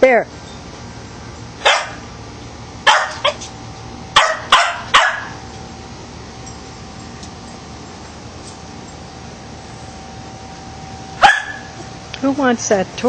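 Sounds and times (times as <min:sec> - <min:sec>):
dog barking sharply: 0:01.6 - 0:02.0, 0:02.9 - 0:03.4, 0:04.2 - 0:05.4, 0:11.2 - 0:11.7.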